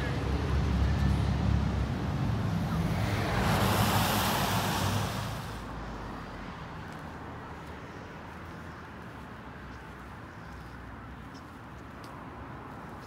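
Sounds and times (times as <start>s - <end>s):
vehicle passing: 0.0s - 8.4s
steady traffic background: 0.0s - 13.0s.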